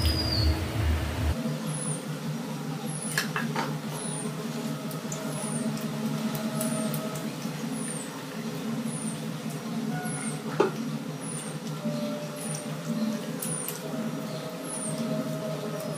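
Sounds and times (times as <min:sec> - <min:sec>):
low steady hum: 0:00.0 - 0:03.0.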